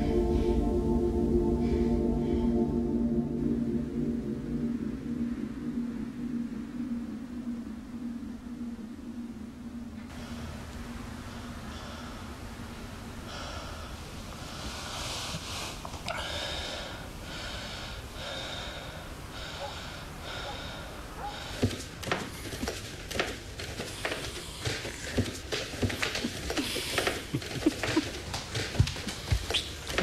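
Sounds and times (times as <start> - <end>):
person breathing heavily: 0.0 - 2.9, 10.1 - 30.0.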